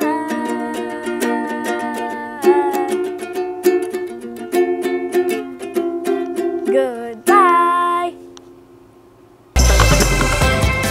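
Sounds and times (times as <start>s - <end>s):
girl singing: 0.0s - 8.4s
ukulele strumming: 0.0s - 8.7s, 9.6s - 10.9s.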